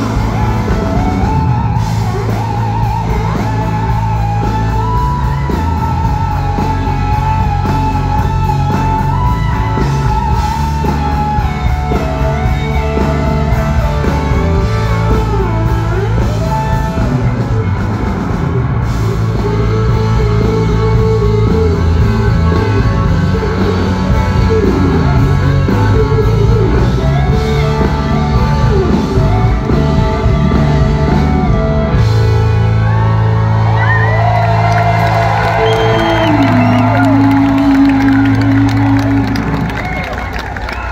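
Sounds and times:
country-rock band playing: 0.0s - 40.9s.

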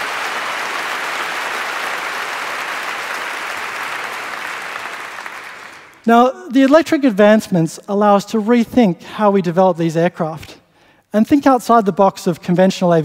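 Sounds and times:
large audience applauding: 0.0s - 6.1s.

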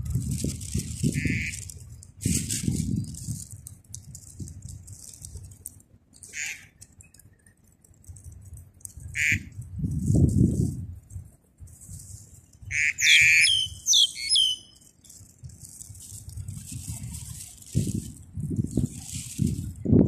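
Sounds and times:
wind noise on microphone: 0.0s - 6.4s, 8.0s - 20.0s
crackly rustling: 0.0s - 20.0s
short bird chirps: 13.0s - 14.8s.

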